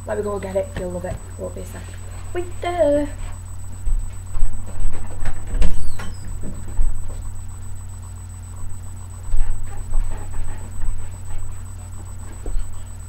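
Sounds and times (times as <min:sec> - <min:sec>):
faint high whine: 0:00.0 - 0:13.0
low electrical hum: 0:00.0 - 0:13.0
footsteps and thumps: 0:03.2 - 0:07.4, 0:09.2 - 0:12.9.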